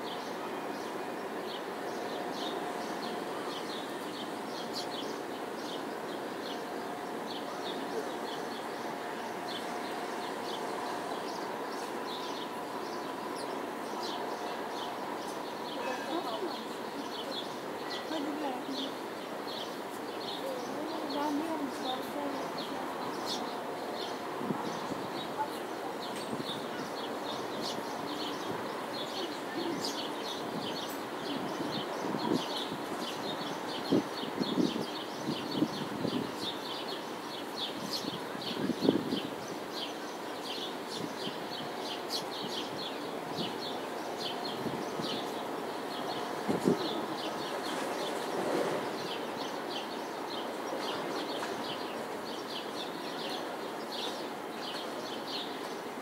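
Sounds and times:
city noise: 0.0 - 56.0
small birds chirping: 0.0 - 56.0.

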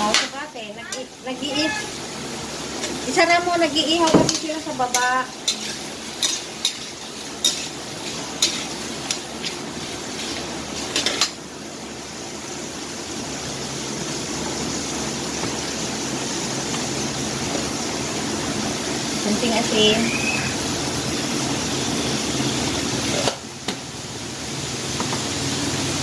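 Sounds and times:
shrimp sizzling in oil: 0.0 - 26.0
metal spatula scraping wok: 2.8 - 11.4.

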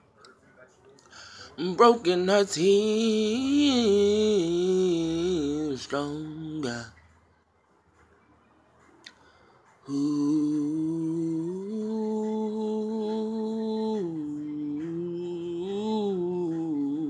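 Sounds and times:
man humming a slow melody: 9.9 - 17.0.

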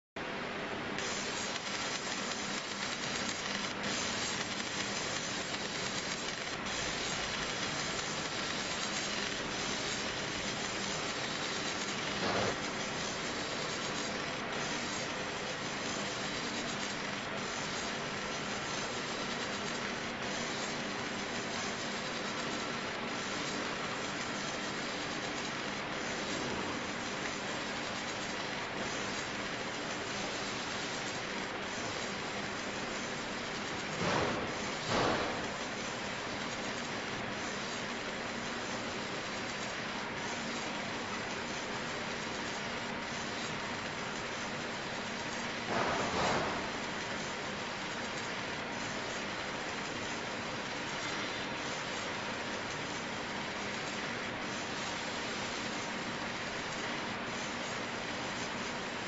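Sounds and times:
laser hissing sizzle: 1.0 - 59.0.

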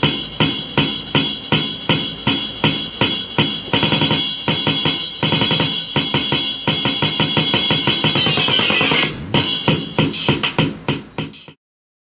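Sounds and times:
intro music with drum beat: 0.0 - 11.6.

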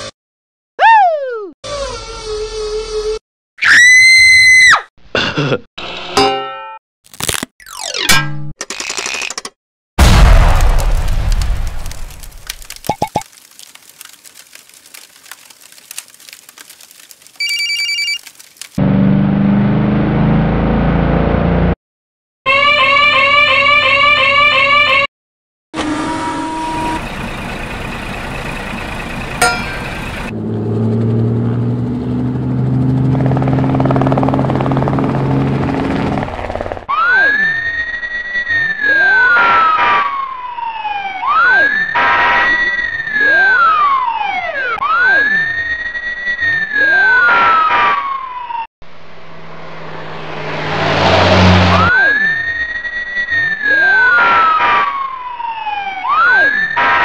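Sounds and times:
fire engine siren wailing: 25.8 - 35.9, 39.9 - 41.6, 43.2 - 47.2, 48.3 - 57.0
low truck engine: 25.8 - 36.9, 48.8 - 51.9.

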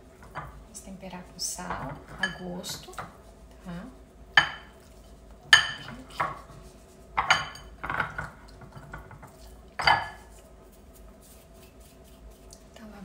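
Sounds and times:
glass bowl clinking: 1.7 - 3.1, 4.4 - 4.8, 5.5 - 6.3, 7.2 - 10.3.

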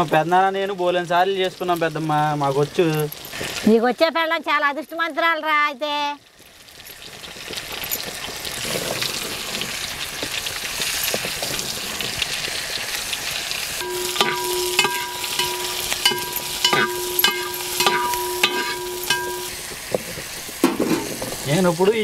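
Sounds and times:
food sizzling in hot oil: 0.0 - 4.3, 5.2 - 22.0
ladle knocking against pot: 13.8 - 19.6
ringing metallic tone: 13.8 - 19.8.

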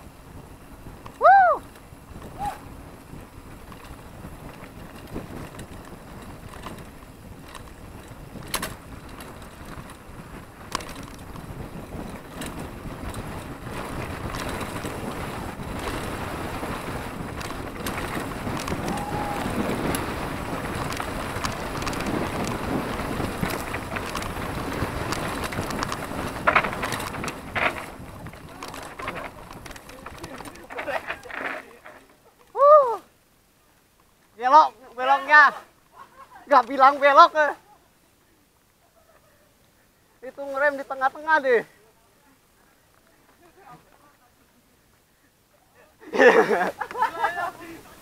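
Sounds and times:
wind buffeting the microphone: 0.0 - 31.9
bike tyres rattling over ground: 0.0 - 33.0, 34.0 - 37.6, 40.2 - 41.7.

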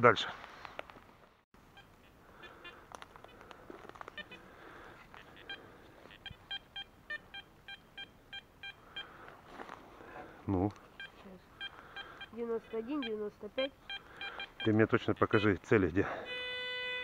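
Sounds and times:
metal detector beeps: 5.2 - 9.1, 10.9 - 17.0.

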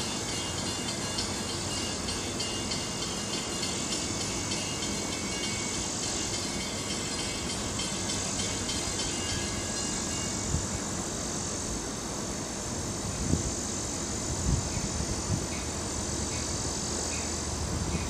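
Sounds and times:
distant train rumble: 0.0 - 12.2
insects hissing in trees: 0.0 - 18.0.

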